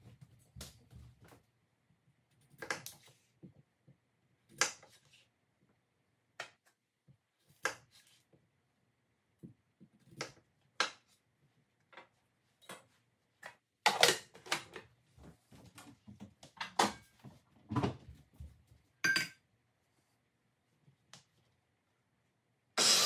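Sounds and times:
knife cutting potato on board: 7.5s - 8.3s
kitchenware knocking and clanking: 19.0s - 19.4s.

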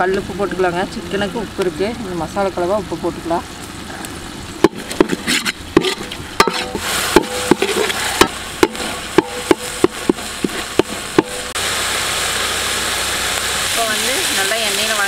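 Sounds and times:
paste sizzling in oil: 4.3s - 15.0s
spatula scraping metal pan: 4.6s - 11.4s.

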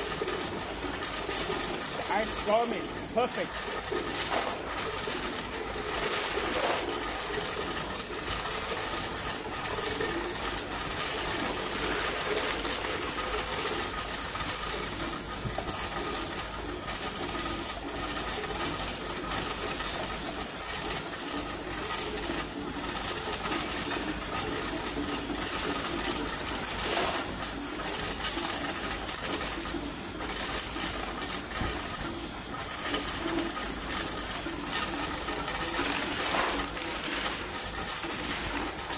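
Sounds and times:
ice machine humming: 0.0s - 38.9s
ice tubes clattering into basin: 0.1s - 14.1s, 32.8s - 38.9s.

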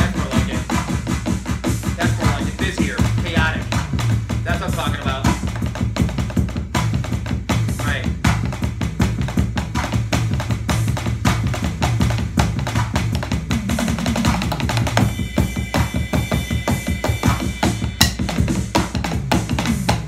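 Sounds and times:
frenetic electronic drums: 0.0s - 20.0s
steady high tone: 15.0s - 18.1s.

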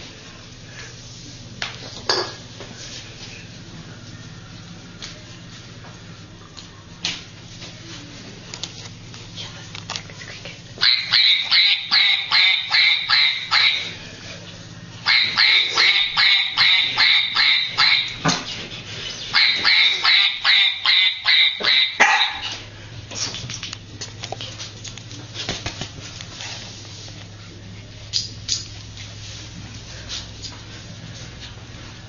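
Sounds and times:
small dog yapping: 19.4s - 22.6s.

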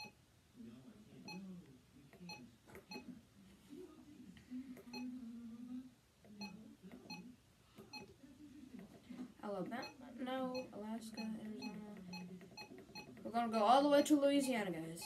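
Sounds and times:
electronic key beeps: 9.8s - 13.2s.

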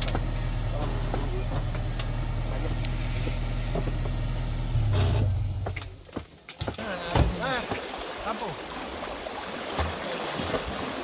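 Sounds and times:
engine idling: 0.0s - 5.8s.

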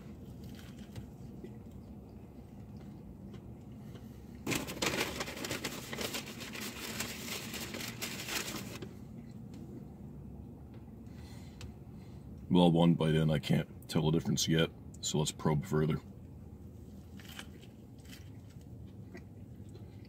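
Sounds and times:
chewing food: 0.1s - 4.4s, 17.0s - 20.0s
paper packaging rustling: 4.5s - 8.8s.

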